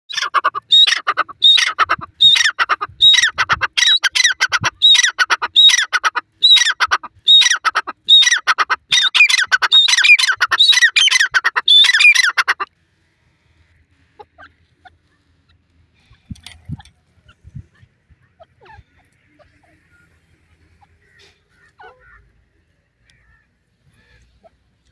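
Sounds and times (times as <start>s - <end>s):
francolin calling: 0.1s - 12.6s.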